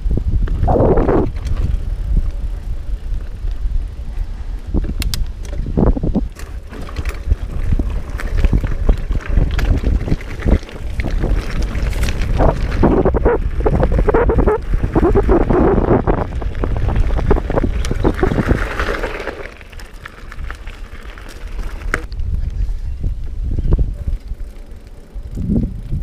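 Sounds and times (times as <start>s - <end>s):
bike rattling: 0.0s - 26.0s
wind rumble on microphone: 0.0s - 26.0s
tyres crunching on gravel: 6.3s - 14.0s, 15.8s - 22.1s.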